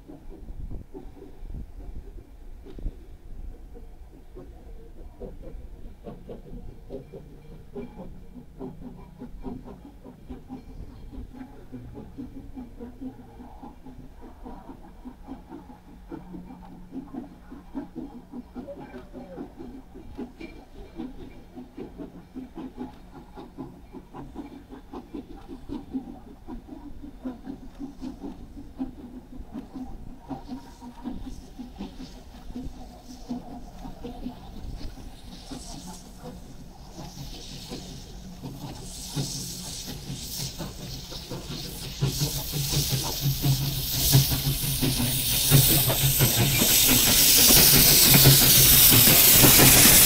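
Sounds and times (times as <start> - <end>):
hiss of steam: 0.0 - 50.0
steam locomotive exhaust chuffs: 0.0 - 50.0.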